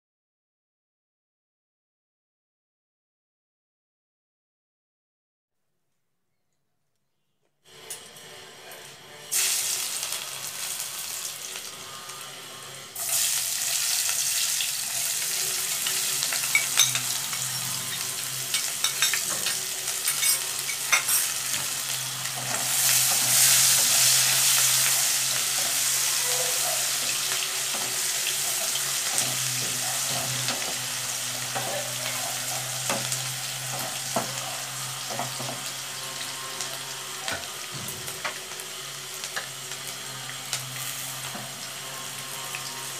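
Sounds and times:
onions sizzling in oil: 9.3s - 42.9s
spatula scraping a pan: 15.6s - 36.3s.

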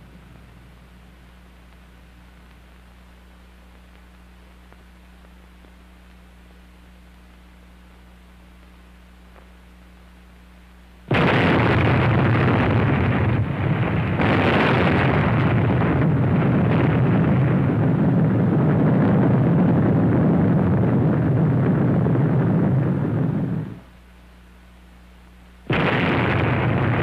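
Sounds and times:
explosion blast: 11.1s - 23.8s, 25.7s - 27.0s
sustained explosion rumble: 11.1s - 23.9s, 25.7s - 27.0s.

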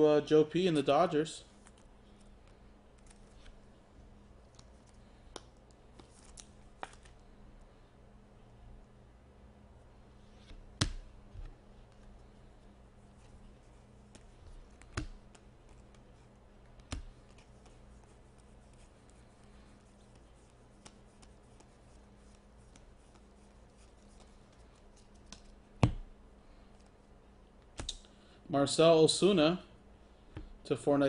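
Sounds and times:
low steady hum: 0.0s - 31.0s
cards flicking and sliding: 14.0s - 16.1s.

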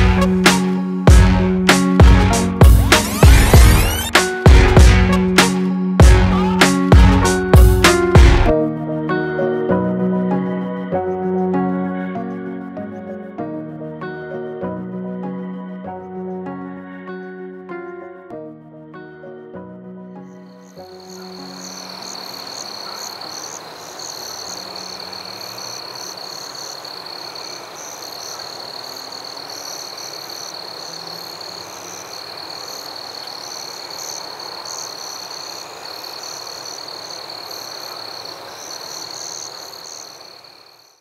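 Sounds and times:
frogs croaking: 20.2s - 41.0s
insect chirps: 20.3s - 41.0s
high-pitched insect trill: 20.4s - 41.0s.

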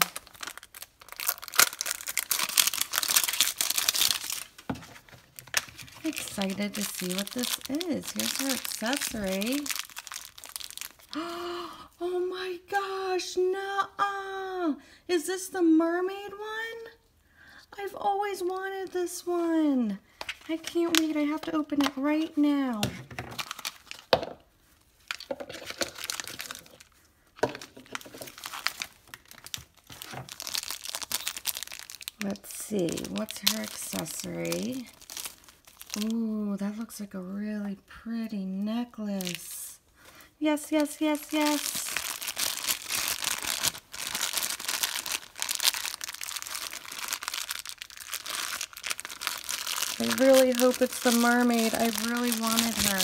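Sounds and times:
plastic wrapper crinkling: 0.0s - 11.3s, 20.2s - 36.3s, 39.2s - 53.0s.

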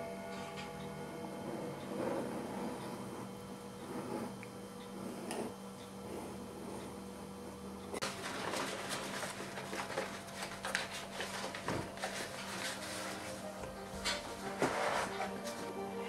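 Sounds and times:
faint steady hum: 0.0s - 14.5s
paper rustling and crinkling: 8.0s - 15.7s.

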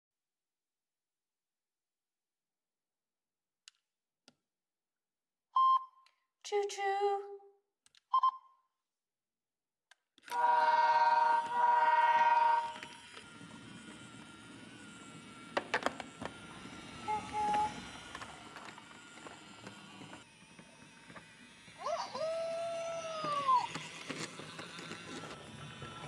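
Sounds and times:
toy train horn tone: 10.3s - 13.2s, 17.0s - 18.0s.

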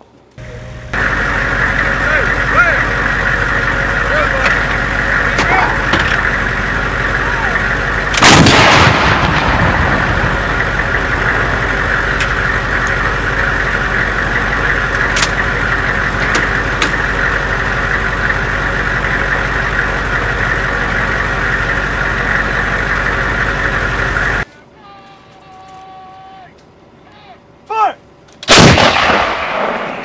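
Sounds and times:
truck engine idling: 0.2s - 30.0s
howitzer shot: 0.4s - 24.4s, 28.4s - 30.0s
sharp metallic clicks: 10.1s - 17.2s.

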